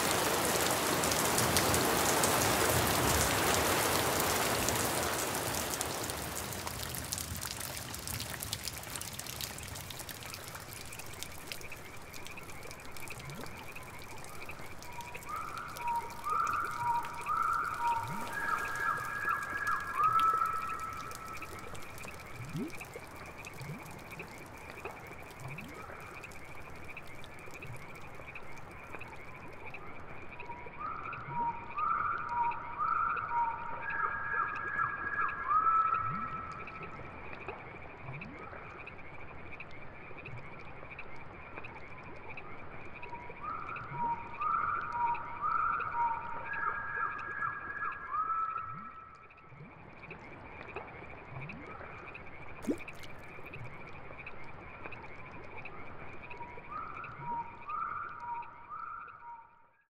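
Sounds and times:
rain hiss: 0.0s - 29.6s
frogs trilling: 4.0s - 59.5s
low rising frog croaks: 6.8s - 31.5s, 48.6s - 58.8s.

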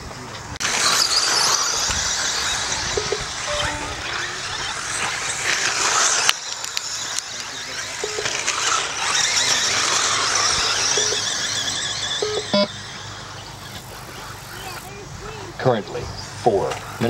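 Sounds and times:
rc car motors whining: 0.1s - 17.0s.

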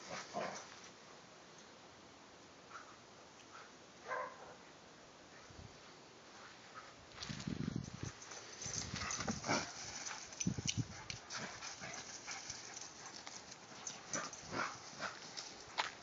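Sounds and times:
dog paws thudding on grass: 7.1s - 16.0s.

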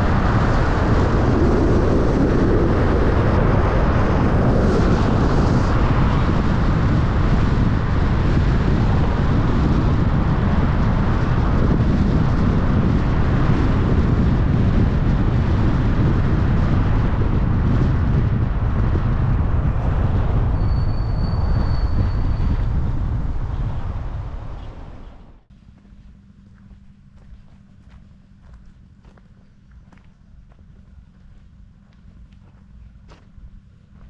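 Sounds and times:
car road and wind noise: 0.0s - 25.5s, 26.8s - 34.0s
thin high whistle: 20.6s - 22.5s.

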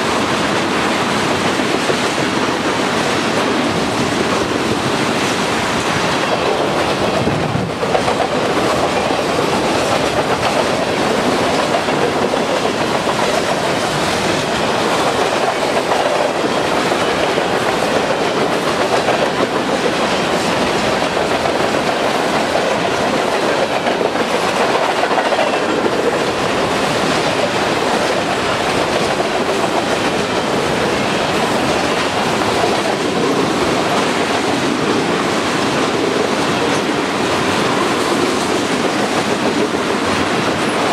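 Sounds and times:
train wheels rolling on rails: 0.0s - 40.9s.

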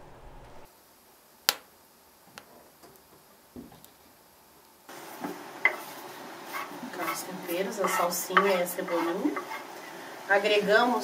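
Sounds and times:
logs crackling and popping in stove: 1.4s - 9.8s.

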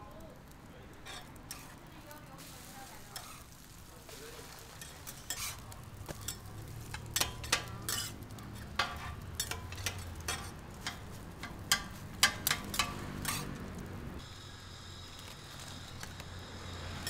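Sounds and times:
frying sizzle: 0.0s - 17.0s
metal spatulas scraping on griddle: 1.0s - 1.8s, 2.4s - 13.8s.

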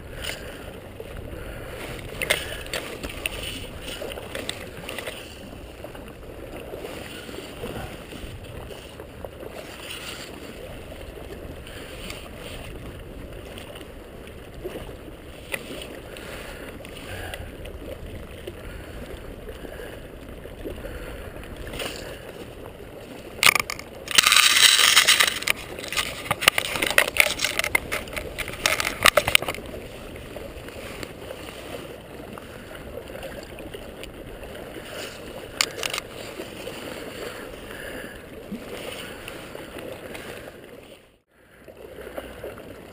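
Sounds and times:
river water lapping: 0.0s - 42.9s
scraping and crackling handling noise: 23.4s - 29.8s, 34.9s - 36.8s.

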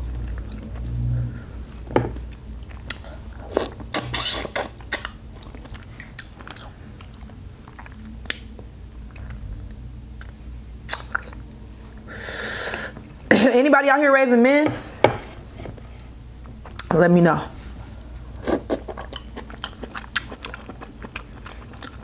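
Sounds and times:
chewing and crunching shellfish: 0.0s - 1.0s, 1.6s - 12.1s, 18.1s - 22.0s.

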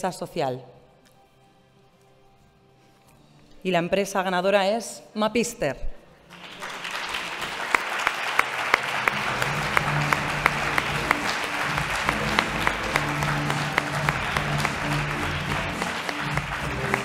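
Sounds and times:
background music: 0.0s - 17.0s
audience applauding: 6.3s - 17.0s.

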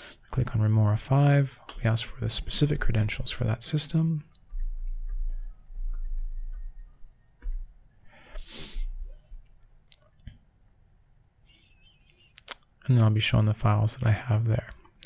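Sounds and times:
computer keyboard keys clicking: 4.3s - 6.8s.

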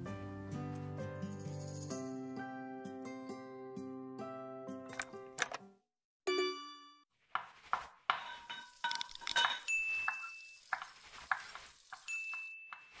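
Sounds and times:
metal utensils clinking on pots: 8.2s - 10.6s.

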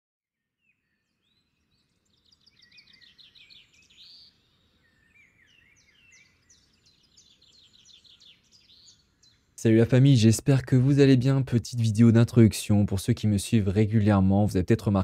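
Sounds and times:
faint birdsong: 0.3s - 15.0s.

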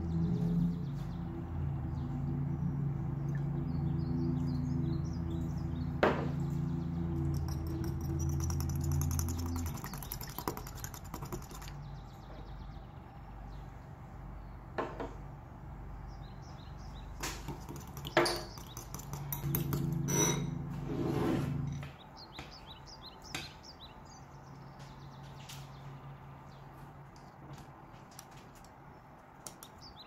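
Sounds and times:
fork clinking glass bowl: 7.2s - 11.6s, 17.7s - 20.6s
low hum: 19.3s - 21.9s.

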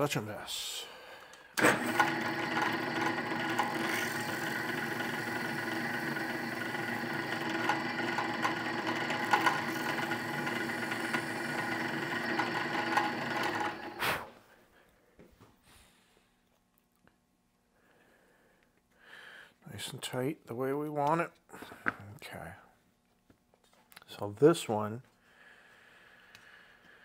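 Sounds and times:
small electric motor running: 1.6s - 14.2s.

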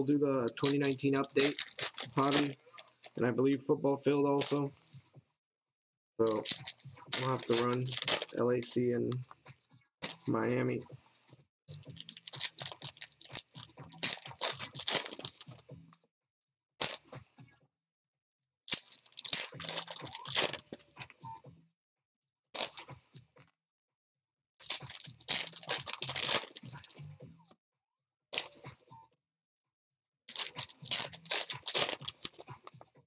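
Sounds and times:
wrapper tearing and crinkling: 0.5s - 3.2s, 6.2s - 8.4s, 11.7s - 15.5s, 18.7s - 20.8s, 22.6s - 22.8s, 24.6s - 27.0s, 30.3s - 32.4s.

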